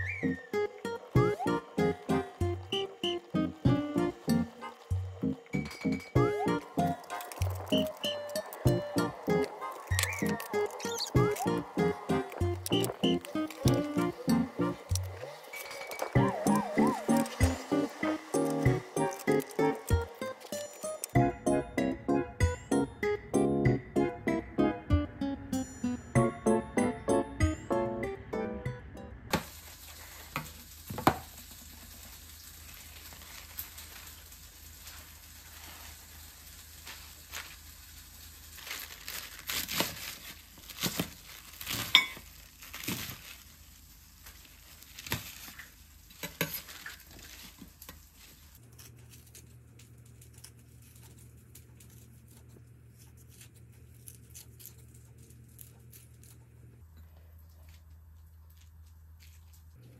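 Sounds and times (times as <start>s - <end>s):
scissors snipping: 9.7s - 15.2s.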